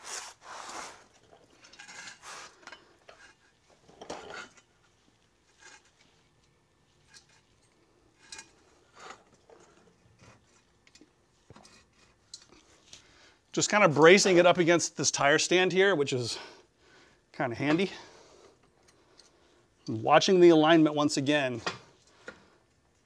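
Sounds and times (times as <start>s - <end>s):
metal clinks and scrapes: 0.7s - 4.9s, 5.5s - 6.4s, 7.0s - 12.7s.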